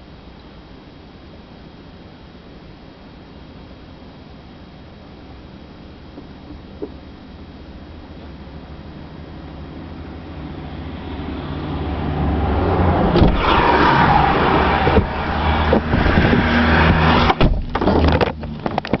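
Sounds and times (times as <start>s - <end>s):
car engine and road noise: 0.0s - 19.0s
oncoming traffic rushing past: 8.4s - 17.5s
sharp knocks: 15.7s - 18.3s.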